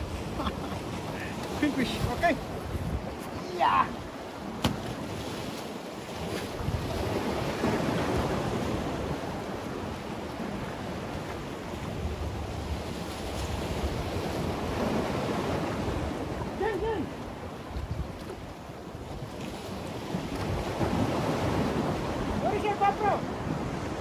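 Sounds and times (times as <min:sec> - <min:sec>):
wind buffeting microphone: 0:00.0 - 0:05.5, 0:06.1 - 0:24.0
sea waves breaking on rocks: 0:00.0 - 0:24.0.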